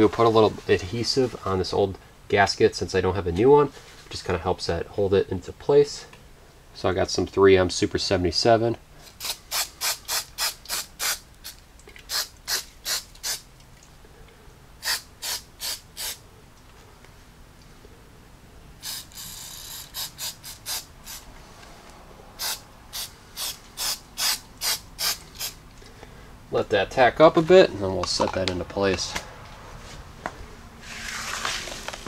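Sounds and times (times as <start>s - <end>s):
aerosol spray hiss: 9.2s - 13.4s, 14.8s - 16.2s, 19.9s - 21.3s, 22.4s - 25.6s
short sharp brushing strokes: 30.8s - 32.0s.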